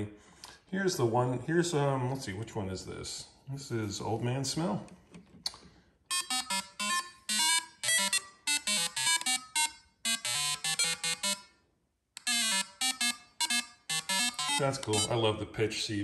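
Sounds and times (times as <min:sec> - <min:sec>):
synthesizer playing buzzy notes: 0:06.1 - 0:11.5, 0:12.2 - 0:15.1.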